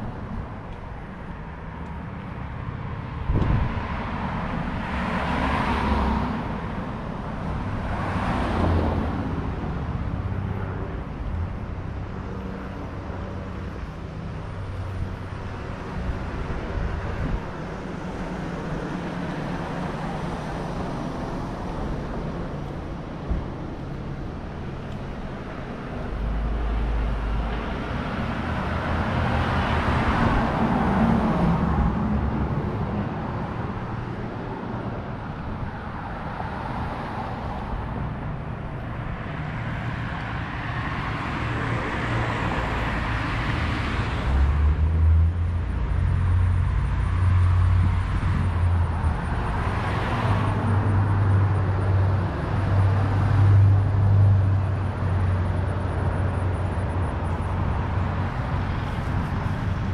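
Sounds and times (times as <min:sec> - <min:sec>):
cars passing by: 0:00.0 - 0:59.9.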